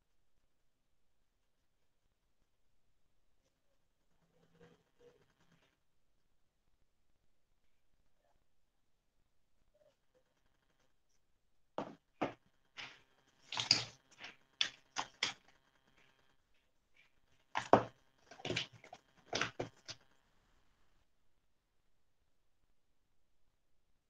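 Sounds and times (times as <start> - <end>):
clay plaque knocking on table: 11.8 - 12.4.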